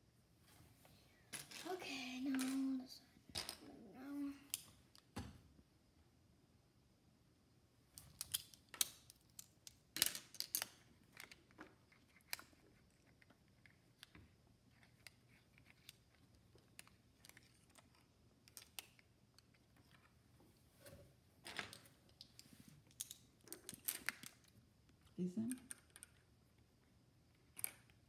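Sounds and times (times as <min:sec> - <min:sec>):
plastic bricks clicking on table: 0:08.0 - 0:12.6, 0:13.6 - 0:20.1, 0:21.4 - 0:24.5, 0:25.5 - 0:26.3, 0:27.4 - 0:28.0.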